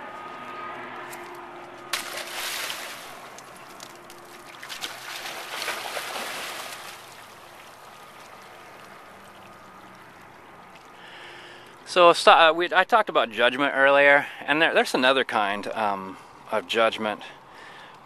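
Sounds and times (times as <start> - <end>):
water gently lapping: 1.9 - 11.7
dog splashing into water: 2.0 - 9.7.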